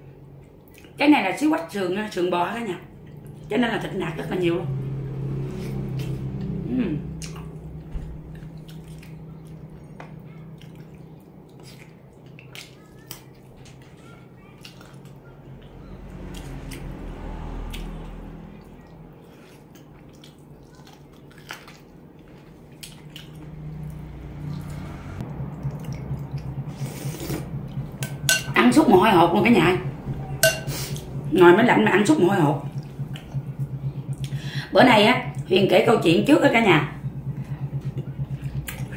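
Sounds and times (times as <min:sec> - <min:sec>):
low steady hum: 0:00.0 - 0:38.9
wet chewing and lip smacks: 0:07.2 - 0:16.9, 0:19.4 - 0:27.8, 0:38.0 - 0:38.9.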